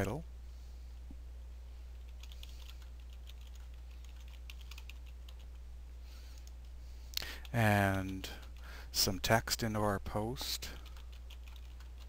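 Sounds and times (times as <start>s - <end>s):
low electrical hum: 0.0s - 12.0s
keyboard typing: 2.0s - 5.6s, 7.4s - 8.6s, 10.7s - 12.0s.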